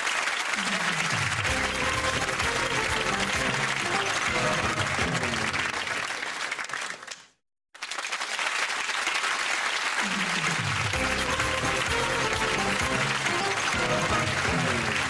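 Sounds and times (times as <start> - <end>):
audience applauding: 0.0 - 15.0
theme music: 1.4 - 5.8, 10.8 - 15.0.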